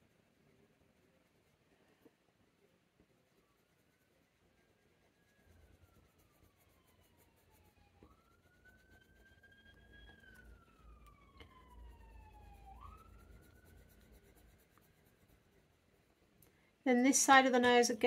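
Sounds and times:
distant siren wailing: 5.0s - 14.6s.

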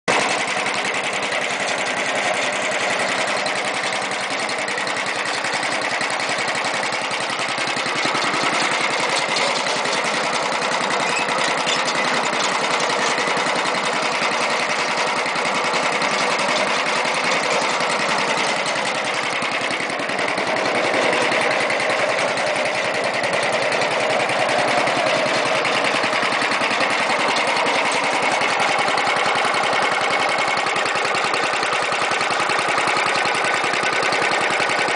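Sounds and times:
snowblower engine running: 0.0s - 34.9s.

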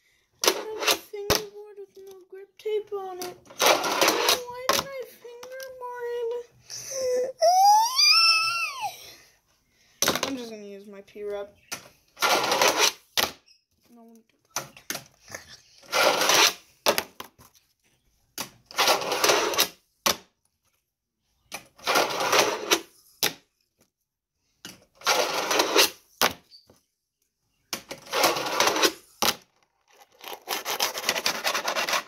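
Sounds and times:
fingerboard wheels rolling on ramp: 3.4s - 4.8s, 15.8s - 16.7s, 18.7s - 19.8s, 21.8s - 22.9s, 25.0s - 26.0s, 27.8s - 32.0s.

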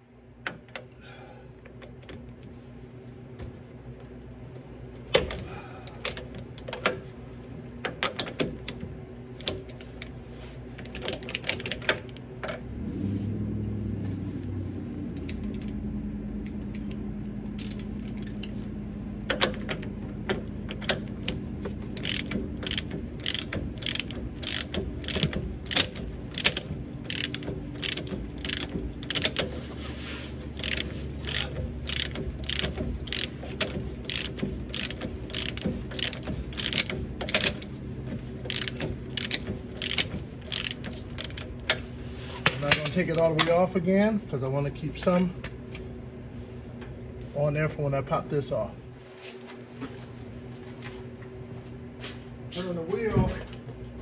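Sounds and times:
steady low hum: 0.0s - 54.0s
ratchet wrench clicking: 22.0s - 29.4s, 30.6s - 37.7s, 38.5s - 41.5s.

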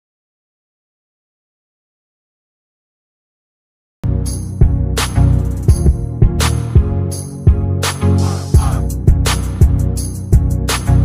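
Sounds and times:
background music with a beat: 4.0s - 11.0s.

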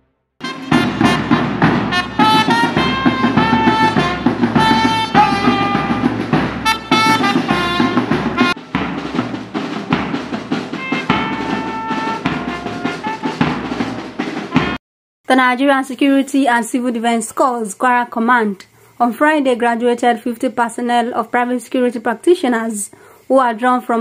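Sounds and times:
brass melody: 0.0s - 14.8s
drum beat: 0.4s - 14.8s.

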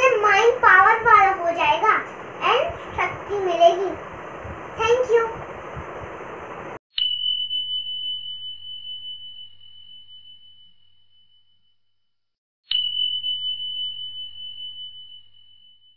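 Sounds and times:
high bell-like ding: 12.7s - 15.9s.

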